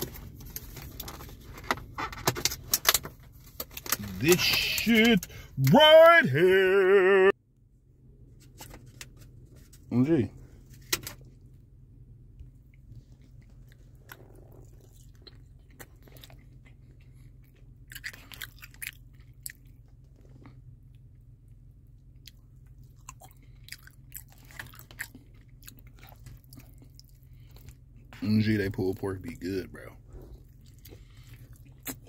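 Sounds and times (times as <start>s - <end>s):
steady low hum: 0.0s - 32.0s
person chewing food: 12.6s - 20.9s, 22.1s - 28.2s, 30.2s - 32.0s.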